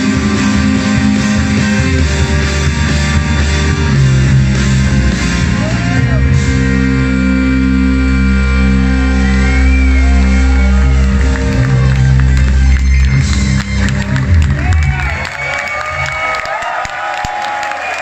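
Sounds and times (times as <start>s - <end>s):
live rock band playing: 0.0s - 16.1s
audience shouting: 14.0s - 18.0s.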